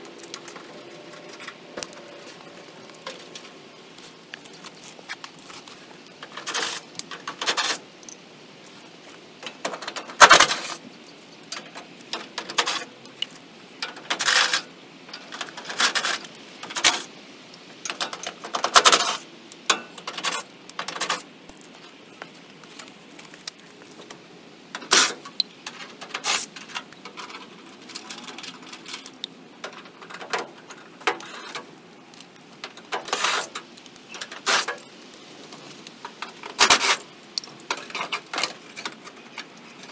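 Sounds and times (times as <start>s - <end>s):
tools and bolts clanking on metal: 0.0s - 3.6s, 6.1s - 8.2s, 9.4s - 10.8s, 11.4s - 13.2s, 13.8s - 21.3s, 24.0s - 34.9s, 35.5s - 39.9s.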